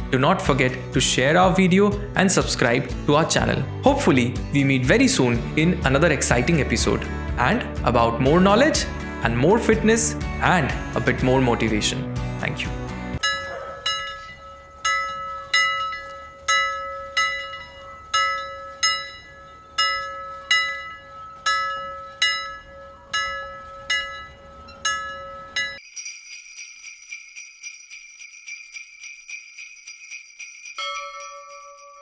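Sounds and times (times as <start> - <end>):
bell-like chime tones: 13.2 - 32.0
high tinkling shimmer: 25.1 - 32.0.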